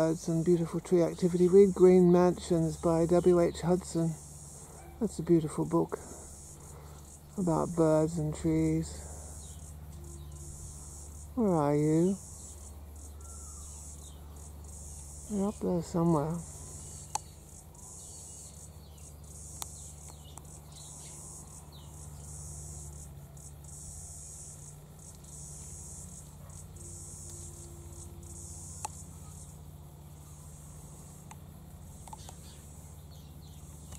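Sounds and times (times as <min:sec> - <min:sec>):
insect chorus trilling: 0:00.0 - 0:33.9
faint bird chirps: 0:09.2 - 0:22.8.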